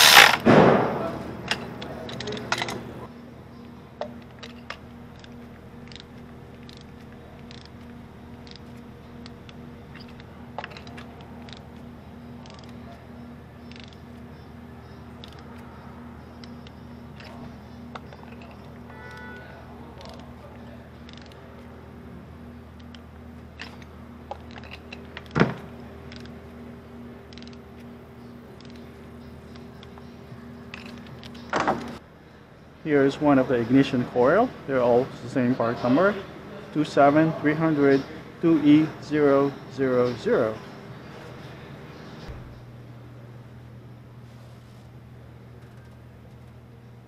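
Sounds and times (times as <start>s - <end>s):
torque wrench clicks: 0.0s - 0.4s, 3.6s - 19.4s, 20.0s - 21.7s, 22.8s - 25.4s, 27.2s - 27.9s, 28.5s - 32.0s
faint steady hum: 0.0s - 47.0s.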